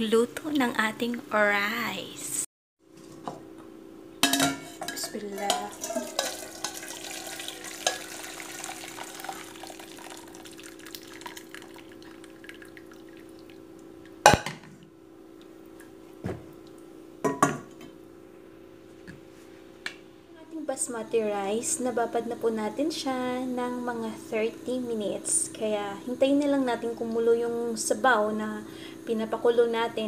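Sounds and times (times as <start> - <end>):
cookware knocks: 4.2 - 6.8, 17.2 - 17.7
broth dripping through colander: 4.8 - 14.2.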